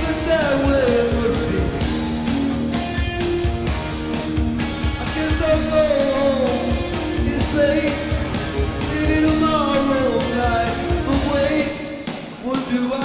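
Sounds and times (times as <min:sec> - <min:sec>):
man singing into microphone: 0:00.0 - 0:01.8, 0:05.0 - 0:08.2, 0:08.8 - 0:13.0
rock and roll backing music: 0:00.0 - 0:13.0
steady drum beat: 0:00.0 - 0:13.0.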